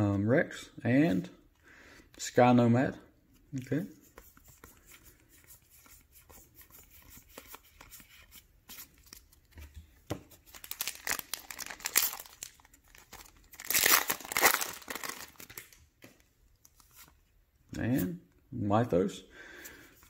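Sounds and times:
foil wrapper crinkling and tearing: 10.4 - 15.8.

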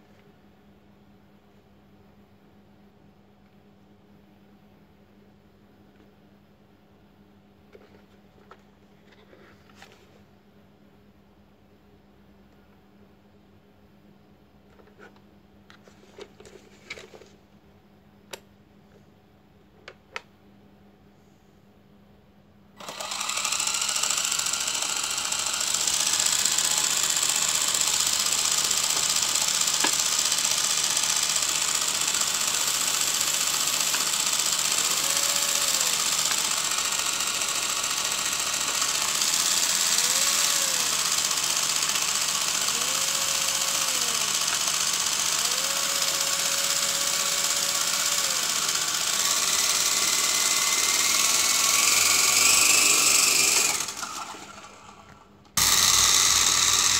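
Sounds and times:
toy helicopter motor whirring: 22.8 - 56.9.

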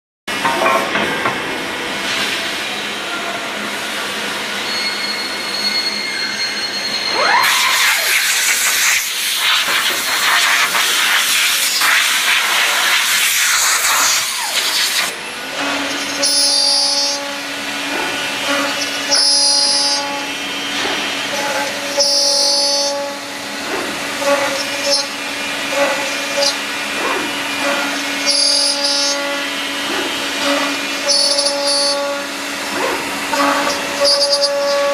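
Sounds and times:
high-pitched cutting bursts: 7.1 - 15.1
machine hum: 7.1 - 34.9
loud hiss: 7.3 - 15.1.

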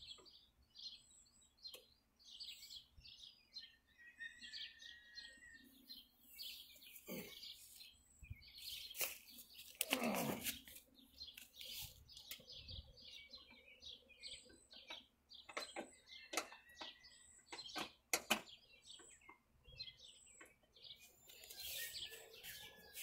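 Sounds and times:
small birds chirping: 0.0 - 23.0
clicks and knocks on lawn mower: 14.9 - 18.6.

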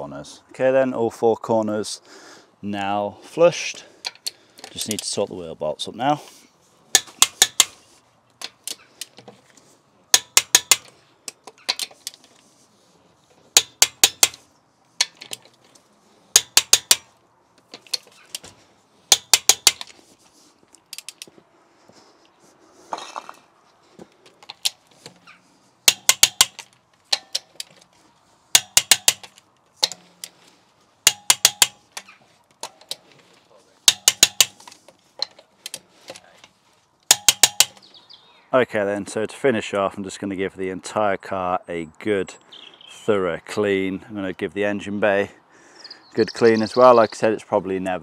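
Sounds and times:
ratchet wrench clicking: 25.9 - 27.5.

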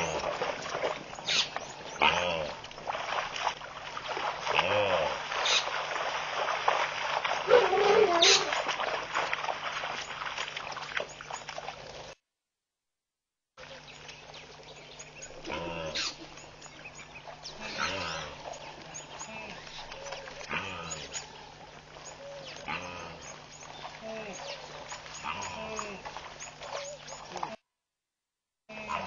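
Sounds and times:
wildebeest grunting calls: 15.3 - 16.4, 17.5 - 21.5, 22.2 - 23.4, 24.0 - 27.6, 28.7 - 29.0.

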